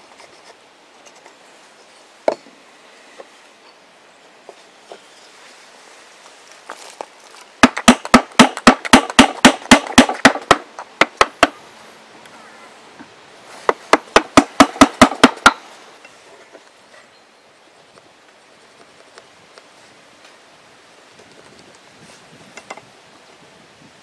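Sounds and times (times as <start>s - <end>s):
mallet striking chisel into wood: 7.6s - 11.6s, 13.7s - 15.6s.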